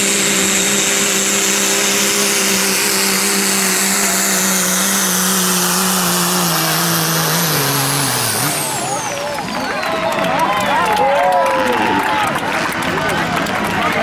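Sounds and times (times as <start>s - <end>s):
high turbo whistle: 0.0s - 10.8s
diesel engine at full throttle: 0.0s - 14.0s.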